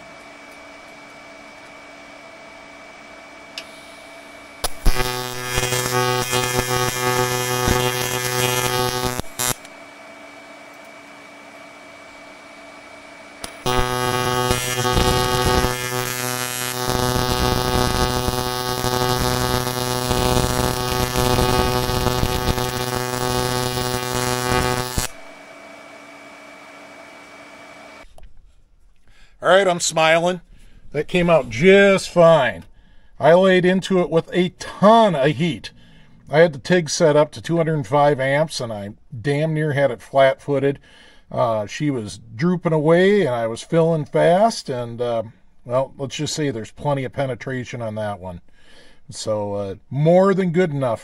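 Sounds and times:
welding arc buzzing: 0:00.0 - 0:28.1
faint steady hum: 0:00.0 - 0:49.9.

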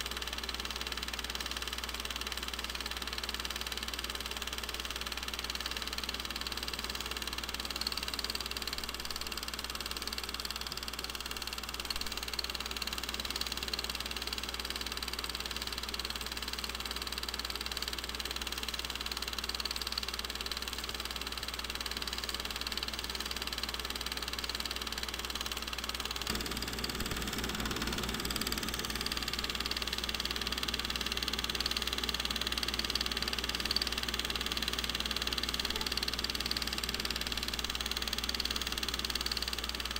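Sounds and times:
film projector whirring and clattering: 0:00.0 - 0:39.9
low hum: 0:26.3 - 0:34.0.

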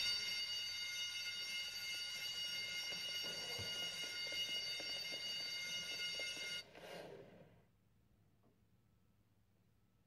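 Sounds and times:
electric bell ringing: 0:00.0 - 0:06.7.

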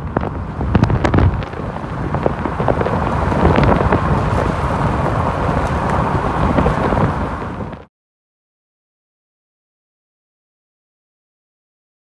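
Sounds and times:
car driving rumble: 0:00.0 - 0:07.9
wind buffeting microphone: 0:00.0 - 0:07.9.

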